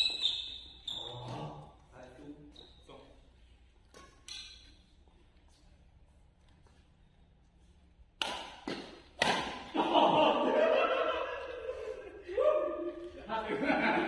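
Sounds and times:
racket hitting shuttlecock: 0:08.2 - 0:09.8.

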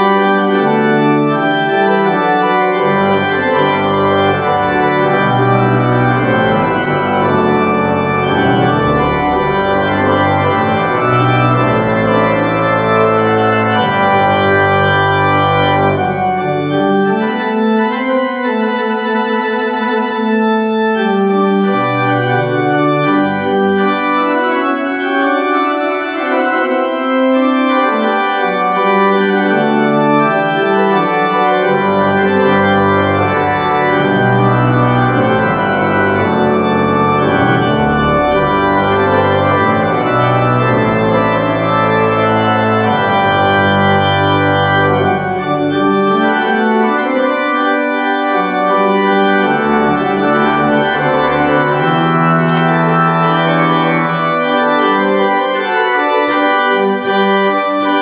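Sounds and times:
church organ chords: 0:00.0 - 0:58.0
deep organ pedal bass notes: 0:00.0 - 0:58.0.

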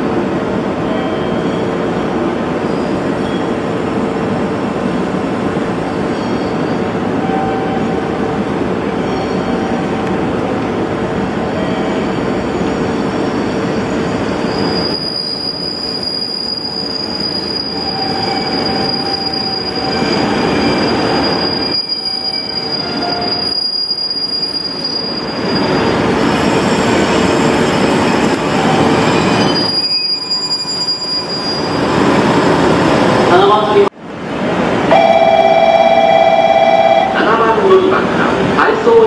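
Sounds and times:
high steady squeal: 0:11.5 - 0:32.6.

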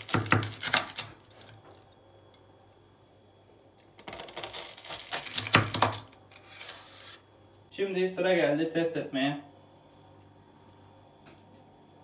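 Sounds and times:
knife crunching through bread crust: 0:00.0 - 0:01.6, 0:04.0 - 0:07.2.

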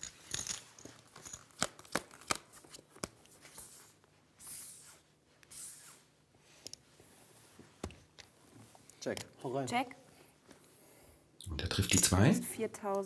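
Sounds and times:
cards swishing across felt: 0:01.9 - 0:07.9.

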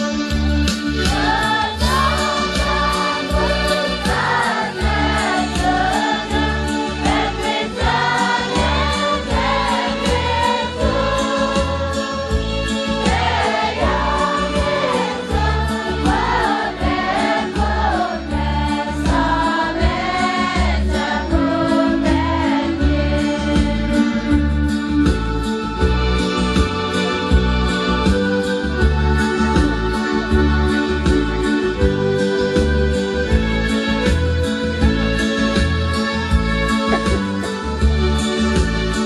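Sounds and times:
music with steady beat: 0:00.0 - 0:39.0
choir singing a hymn: 0:01.0 - 0:24.6.

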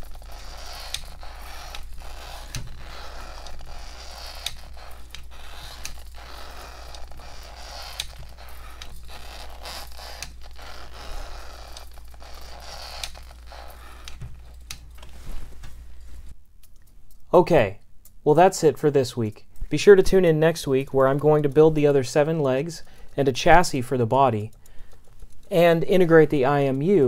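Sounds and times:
servos whirring and buzzing: 0:00.0 - 0:14.7
small clicks: 0:00.0 - 0:15.1, 0:16.5 - 0:17.3.

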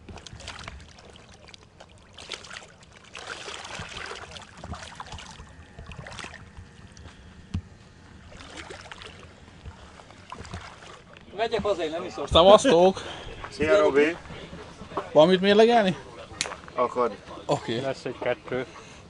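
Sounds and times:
water sloshing and splashing: 0:00.0 - 0:15.2.

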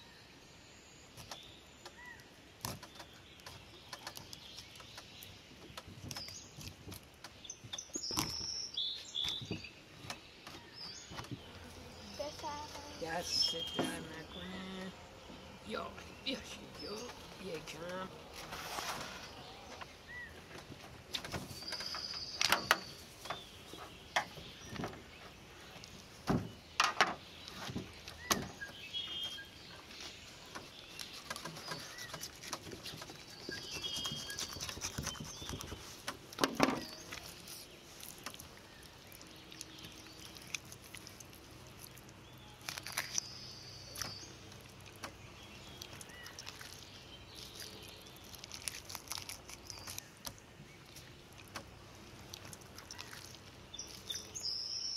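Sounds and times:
bird chirps: 0:07.3 - 0:18.1, 0:21.2 - 0:40.8, 0:42.2 - 0:51.2, 0:52.8 - 0:54.9.

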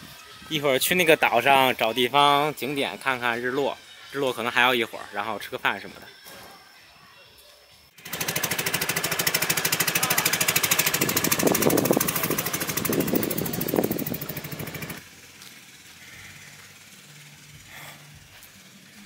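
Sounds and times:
outdoor ambience: 0:00.0 - 0:19.0
boat engine running: 0:08.0 - 0:15.0.

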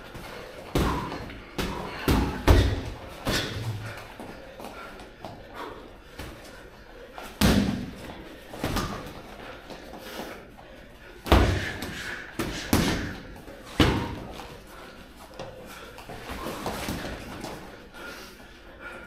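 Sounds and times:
gloved punches thudding: 0:07.4 - 0:08.0, 0:13.8 - 0:14.3.

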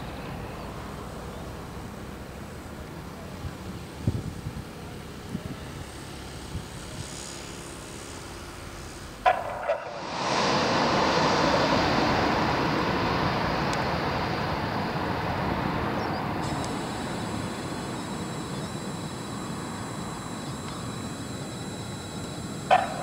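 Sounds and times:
high-pitched engine whine: 0:00.0 - 0:23.0
jet engines roaring: 0:09.2 - 0:23.0.

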